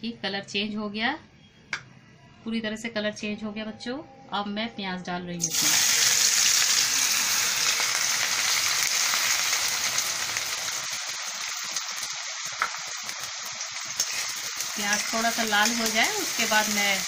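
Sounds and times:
onions sizzling in hot oil: 5.4s - 17.0s
metal spatula stirring: 14.0s - 16.0s.

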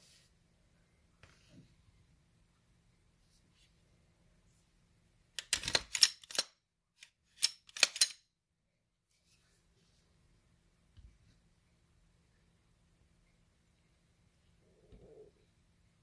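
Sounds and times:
pistol handling clicks and rubbing: 5.4s - 8.2s.

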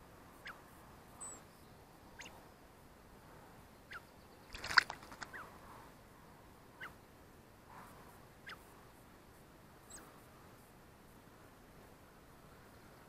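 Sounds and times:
bird splashing in bird bath: 4.5s - 5.3s.

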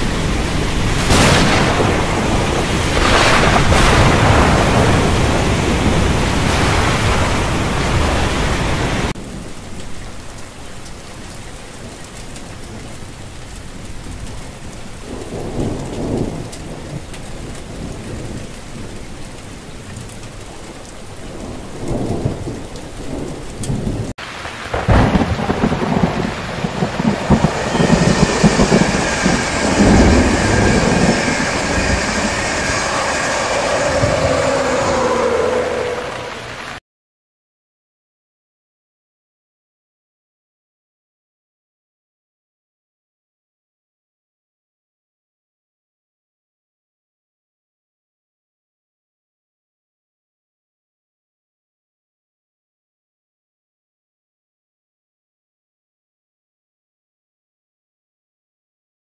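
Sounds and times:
heavy rain: 0.0s - 36.8s
soft steady rain: 0.0s - 36.8s
thunder rumbling: 0.0s - 36.8s
passenger train passing on rails: 26.3s - 36.8s
steady high tones: 27.0s - 36.6s.

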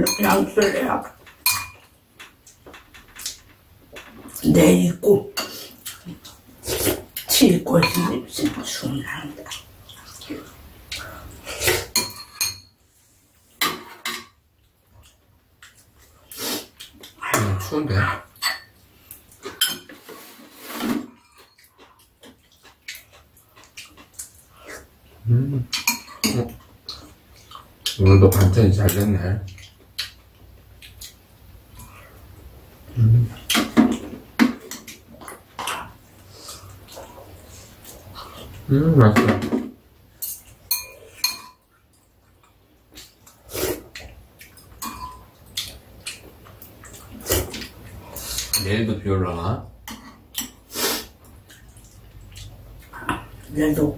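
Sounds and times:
metal chopsticks clinking on bowls: 0.0s - 3.4s, 40.2s - 41.6s.

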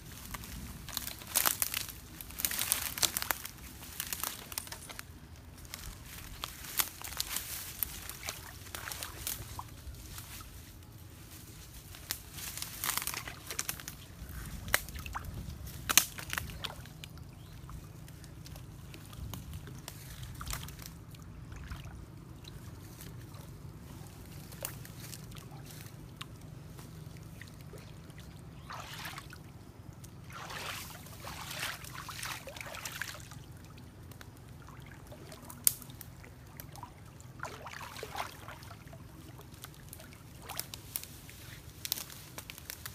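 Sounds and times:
water sloshing around legs: 6.2s - 9.8s, 24.5s - 40.7s.

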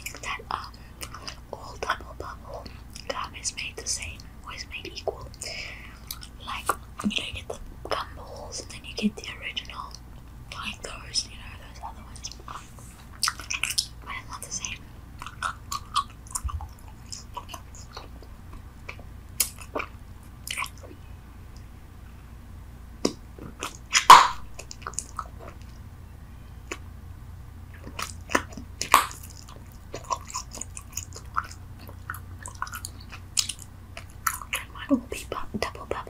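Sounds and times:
gum chewing smacks: 5.0s - 7.1s, 12.1s - 20.9s, 23.0s - 25.8s, 27.7s - 34.8s.

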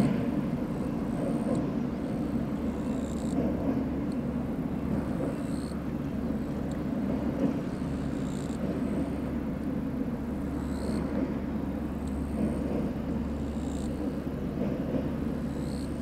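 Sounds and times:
train rumbling across steel bridge: 0.0s - 16.0s.

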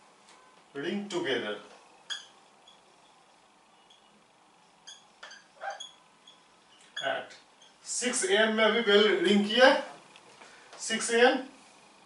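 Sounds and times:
marker squeaking on whiteboard: 2.0s - 3.2s, 3.8s - 4.2s, 4.8s - 7.8s.

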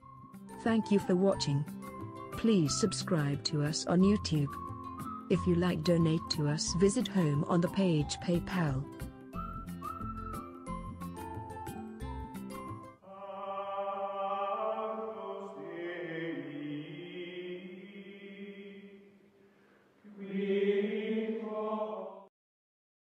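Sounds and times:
choir-like chanting: 13.0s - 19.1s, 20.0s - 22.3s.

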